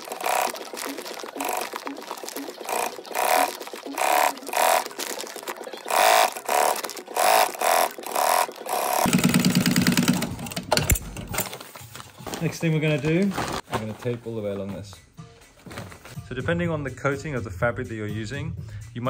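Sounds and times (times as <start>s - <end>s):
sewing machine whine: 0.0s - 10.9s.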